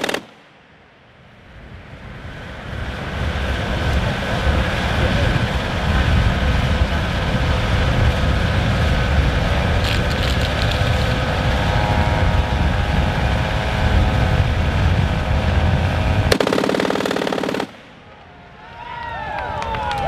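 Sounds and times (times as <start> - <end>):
machine gun rapid fire: 0.0 - 0.4, 16.3 - 17.9.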